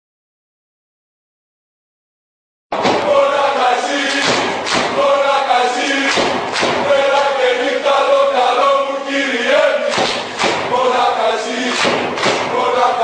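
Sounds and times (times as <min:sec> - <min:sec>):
loud thumps: 0:02.7 - 0:03.4, 0:04.0 - 0:05.1, 0:06.0 - 0:07.0, 0:09.9 - 0:10.8, 0:11.7 - 0:12.7
crowd chanting: 0:02.7 - 0:13.0.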